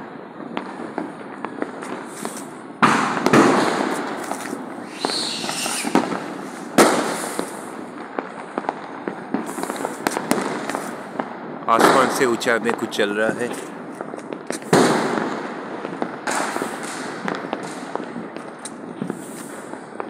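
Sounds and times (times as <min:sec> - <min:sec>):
firecrackers popping: 0:00.0 - 0:20.0
loud firework blasts: 0:00.0 - 0:20.0
falling firework whistle: 0:02.0 - 0:07.7.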